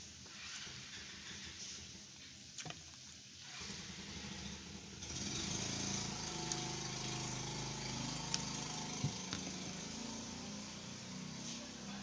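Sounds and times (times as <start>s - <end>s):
motor engine running: 3.9s - 12.0s.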